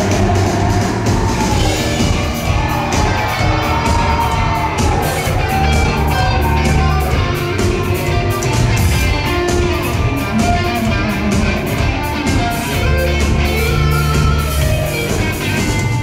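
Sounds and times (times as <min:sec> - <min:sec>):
bass guitar: 0:00.0 - 0:16.0
electric guitars: 0:00.0 - 0:16.0
steady drumbeat: 0:00.0 - 0:16.0.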